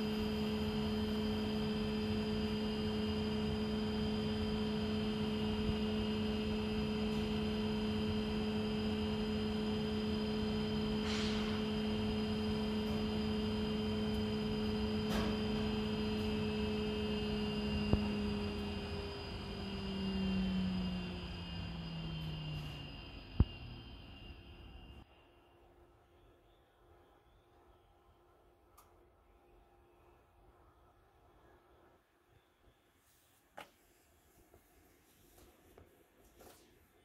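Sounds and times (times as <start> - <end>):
centrifuge humming: 0.0 - 25.0
centrifuge rotor slowing down: 0.0 - 25.0.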